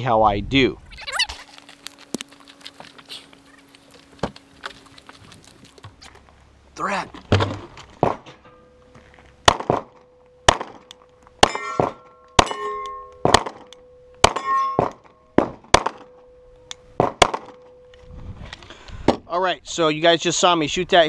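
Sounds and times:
pistol shots: 0:09.4 - 0:16.1, 0:17.0 - 0:17.6
steel targets clanging: 0:11.4 - 0:15.4.

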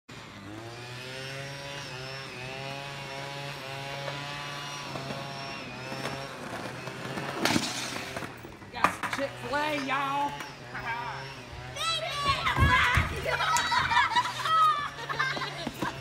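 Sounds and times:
small petrol engine running: 0:00.1 - 0:16.0
skateboard clattering on concrete: 0:05.9 - 0:10.4.

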